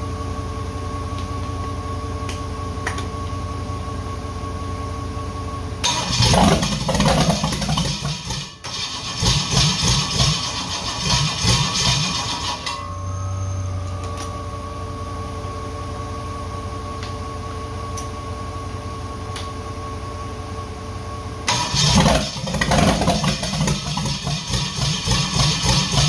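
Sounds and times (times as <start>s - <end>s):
engine cranking on starter: 5.8s - 12.8s, 21.5s - 26.0s
loud rough noise: 5.9s - 12.6s, 21.5s - 26.0s.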